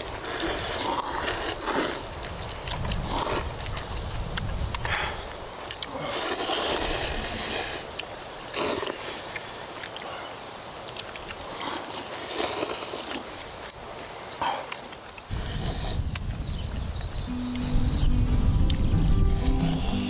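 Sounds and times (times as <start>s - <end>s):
people slurping noodles: 0.0s - 4.2s, 4.8s - 13.6s, 14.3s - 16.5s.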